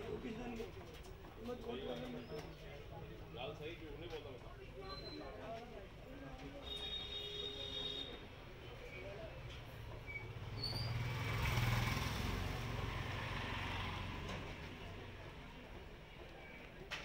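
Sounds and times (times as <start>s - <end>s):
vehicle engine rumble passing: 9.1s - 15.9s.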